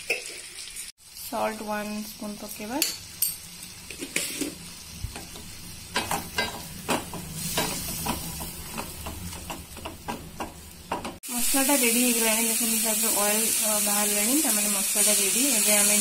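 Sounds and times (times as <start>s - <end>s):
low sizzle of frying: 0.0s - 16.0s
utensil scraping a pan: 3.9s - 4.6s.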